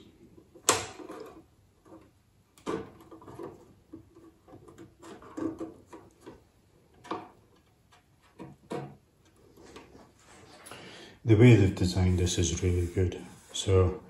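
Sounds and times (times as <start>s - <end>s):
plastic parts knocking and clicking: 0.2s - 9.9s.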